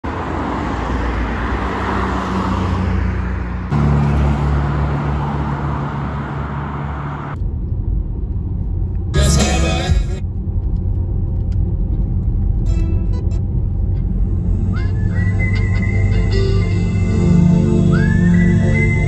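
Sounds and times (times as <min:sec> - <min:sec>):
cars passing by: 0:00.0 - 0:19.0
low drone inside moving car: 0:06.7 - 0:19.0.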